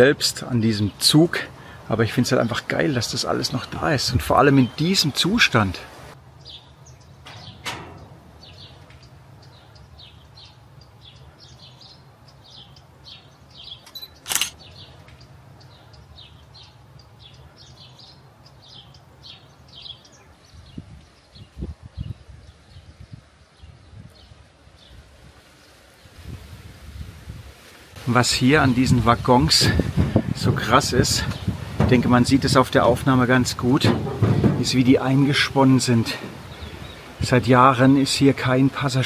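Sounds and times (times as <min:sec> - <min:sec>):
small birds chirping: 0:00.0 - 0:26.3, 0:28.0 - 0:39.0
low thuds: 0:07.2 - 0:10.5, 0:29.8 - 0:37.4
sharp click: 0:13.8 - 0:15.2.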